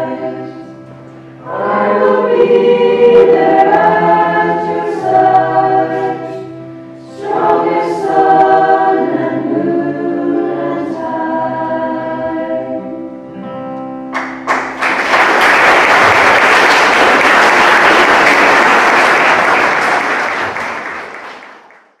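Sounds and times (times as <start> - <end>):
choir singing with guitar: 0.0 - 13.6
audience applauding: 14.2 - 22.0.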